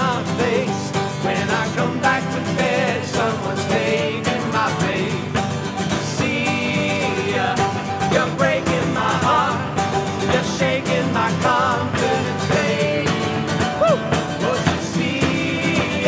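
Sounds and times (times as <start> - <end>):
mandolin: 0.0 - 16.0
strummed acoustic guitar: 0.0 - 16.0
voices singing together: 0.0 - 16.0
marching drum beat: 7.7 - 16.0.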